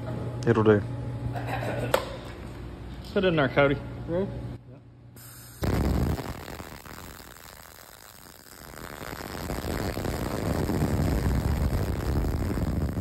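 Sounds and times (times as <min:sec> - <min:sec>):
welding arc crackling: 0:05.2 - 0:13.0.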